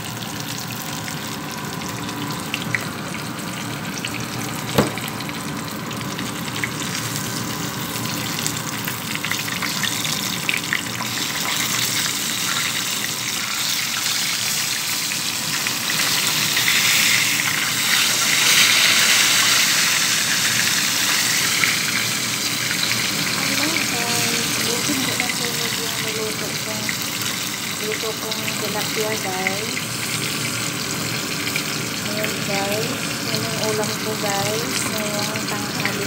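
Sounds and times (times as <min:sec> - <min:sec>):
fish sizzling in hot oil: 0:00.0 - 0:36.0
sharp knock: 0:04.8 - 0:05.0.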